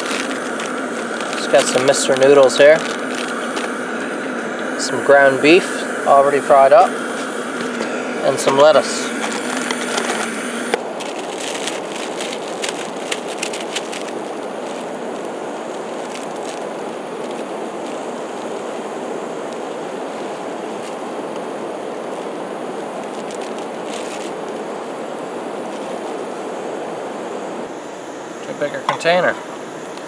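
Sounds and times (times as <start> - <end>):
plastic wrapper crinkling: 0.0 - 18.8, 22.0 - 24.8
steady rushing noise: 0.0 - 30.0.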